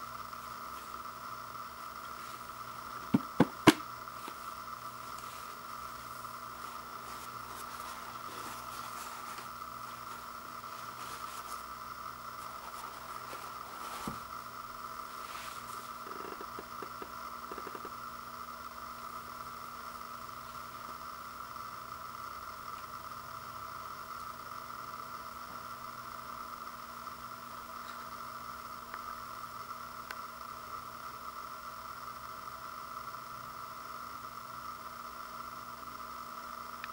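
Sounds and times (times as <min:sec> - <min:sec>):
steady background hiss: 0:00.0 - 0:36.9
steady background hum: 0:00.0 - 0:36.9
paper rolls thumping on wooden floor: 0:03.0 - 0:04.4, 0:13.8 - 0:14.3
paper handling: 0:06.6 - 0:11.7, 0:12.4 - 0:14.3.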